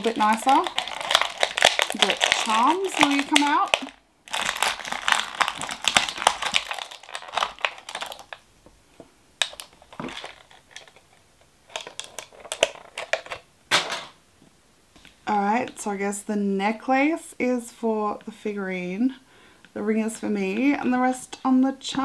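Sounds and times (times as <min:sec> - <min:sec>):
plastic packaging crinkling: 0:00.0 - 0:08.5, 0:09.4 - 0:14.2.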